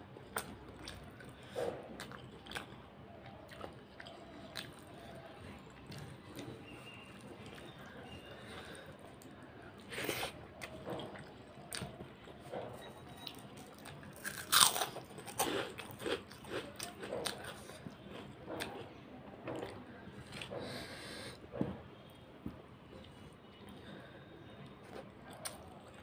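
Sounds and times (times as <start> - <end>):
person chewing with wet smacking: 0.2 - 20.8, 24.6 - 26.0
crisp crunch of a bite: 13.3 - 18.9.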